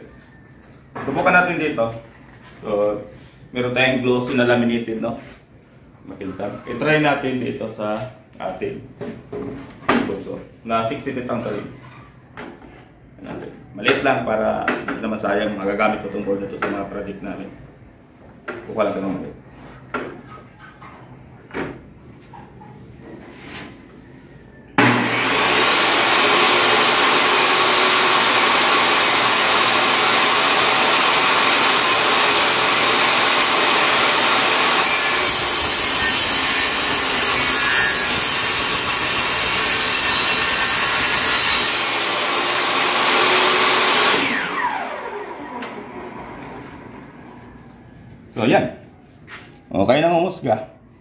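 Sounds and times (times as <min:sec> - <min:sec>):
saw cutting through board: 0:24.8 - 0:46.2
table saw whining: 0:24.8 - 0:47.4.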